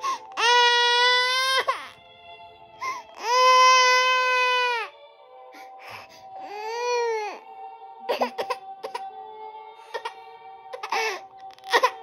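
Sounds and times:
toddler crying: 0.3s - 2.0s, 3.1s - 4.9s, 9.9s - 12.0s.

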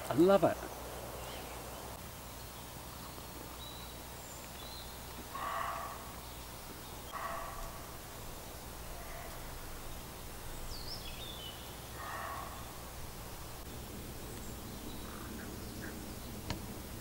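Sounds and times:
woodland background noise: 0.0s - 17.0s
crow cawing: 5.3s - 6.2s, 8.9s - 9.7s, 12.0s - 12.8s, 15.0s - 16.0s.

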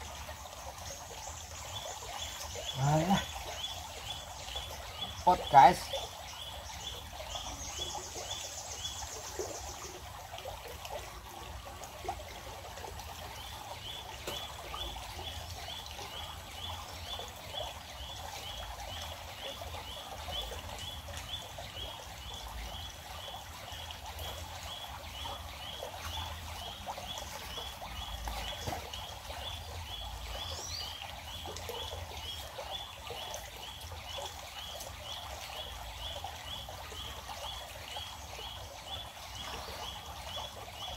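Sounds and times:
stream water trickling: 0.0s - 40.9s.

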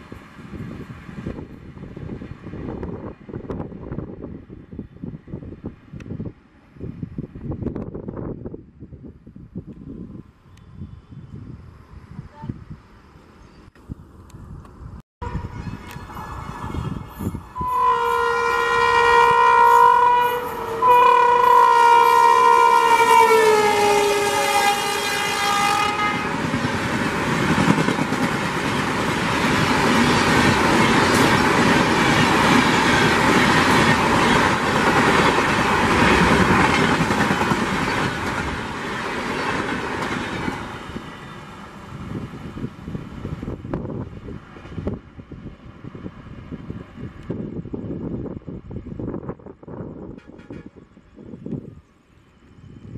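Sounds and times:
locomotive horn blasts: 15.2s - 26.4s, 50.1s - 50.9s
train wheels rushing and clattering: 25.8s - 45.4s.

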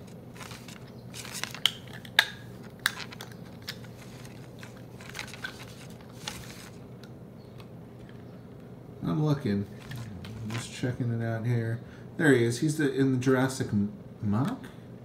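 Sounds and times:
handling clicks and rustling: 0.0s - 8.3s, 9.7s - 10.9s.

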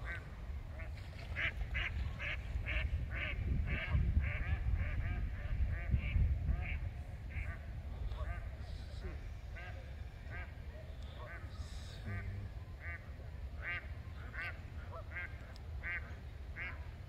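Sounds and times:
ducks quacking: 0.0s - 17.0s.

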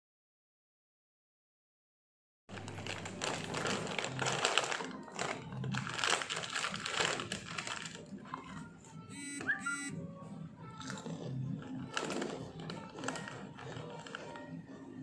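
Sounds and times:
plastic snack packet crinkling: 2.5s - 8.7s, 10.7s - 15.0s.

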